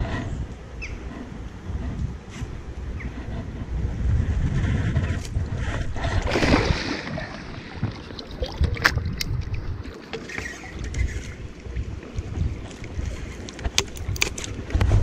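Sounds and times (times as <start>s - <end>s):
wind rumble on microphone: 0.0s - 15.0s
water splashing and sloshing: 5.2s - 15.0s.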